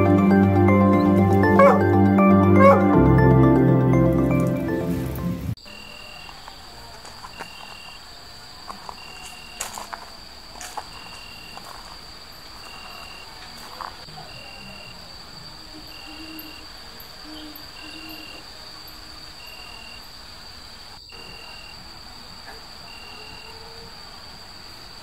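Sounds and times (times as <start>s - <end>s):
cricket trill: 5.6s - 25.0s.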